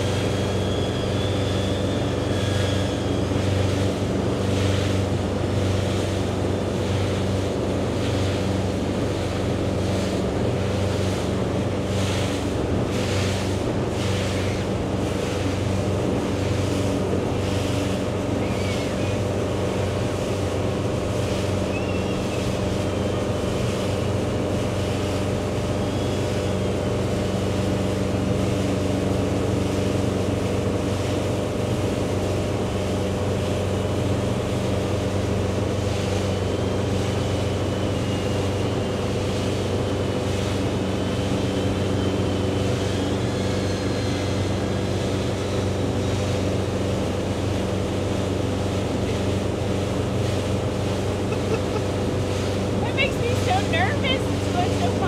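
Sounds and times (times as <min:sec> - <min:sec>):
faint high whine: 0:00.0 - 0:05.3
motorboat engine running: 0:00.0 - 0:55.0
rushing water: 0:00.0 - 0:55.0.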